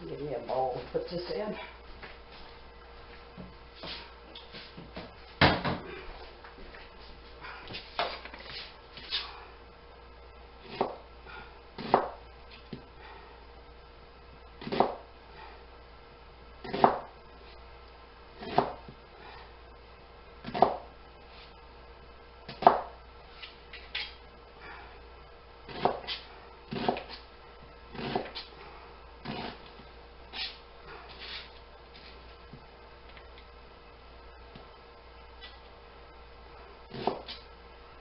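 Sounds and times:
knife chopping onion on board: 10.6s - 11.0s, 11.8s - 12.2s, 14.6s - 15.0s, 16.6s - 17.1s, 18.4s - 18.8s, 20.4s - 20.9s, 22.5s - 23.0s, 25.7s - 27.2s, 27.9s - 28.4s, 36.9s - 37.4s.

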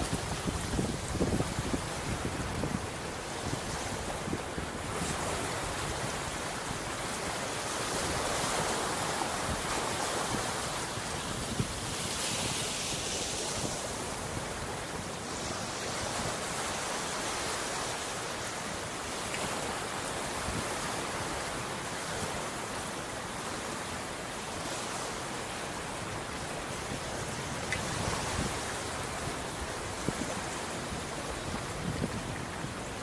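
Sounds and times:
ocean surf washing ashore: 0.0s - 33.0s.

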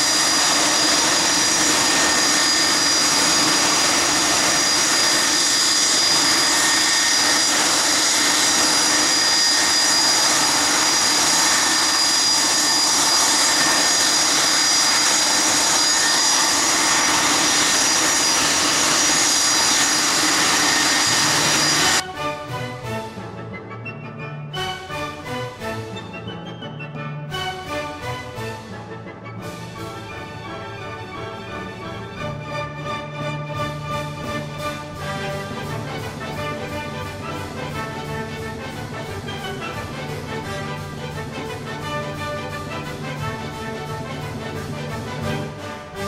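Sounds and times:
jet turbine noise: 0.0s - 22.0s
orchestral music: 0.0s - 46.0s.

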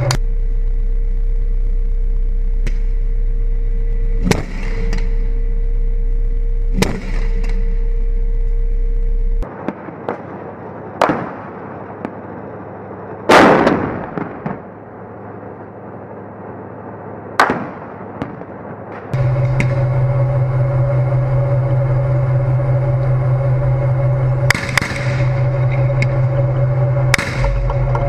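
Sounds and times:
armoured vehicle engine running: 0.0s - 9.5s, 19.1s - 28.0s
gunshots: 6.8s - 7.6s
heavy blast: 19.2s - 28.0s.

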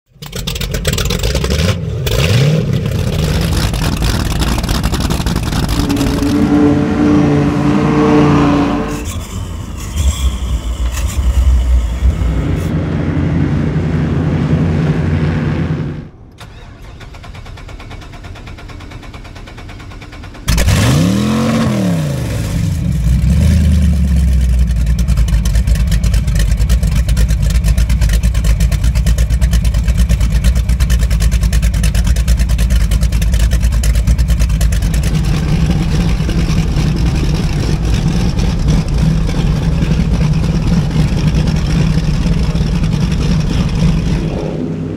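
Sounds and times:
outboard motors idling: 0.1s - 1.5s, 2.8s - 6.4s, 24.2s - 44.4s
boat engine starting and revving: 0.2s - 44.9s.

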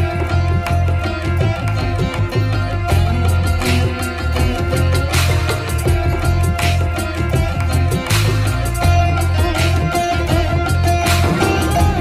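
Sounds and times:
instrumental music with bass beat: 0.0s - 12.0s.

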